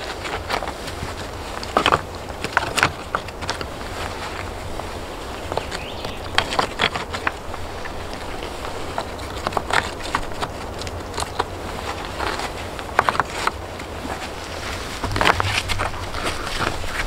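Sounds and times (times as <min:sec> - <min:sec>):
stones clacking together: 0:05.5 - 0:13.6, 0:15.0 - 0:17.0.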